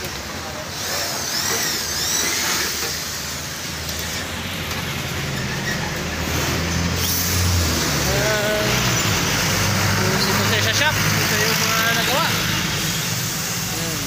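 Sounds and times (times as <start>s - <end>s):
road traffic noise: 0.0s - 14.0s
vehicle engine hum: 2.9s - 14.0s.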